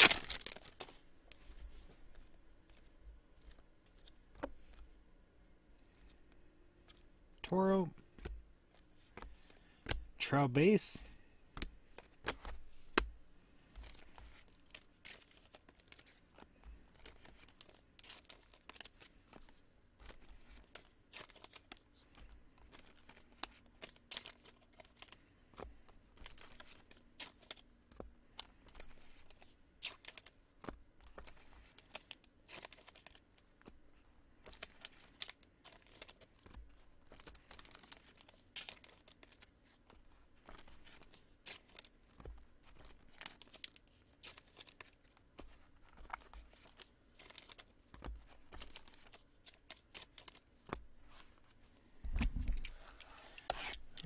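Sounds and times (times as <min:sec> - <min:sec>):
card wrappers ripping and crinkling: 0:00.0 - 0:01.0, 0:13.8 - 0:30.4, 0:31.1 - 0:33.7, 0:34.4 - 0:51.3, 0:53.4 - 0:54.0
cards being handled: 0:00.0 - 0:04.9, 0:08.1 - 0:54.0.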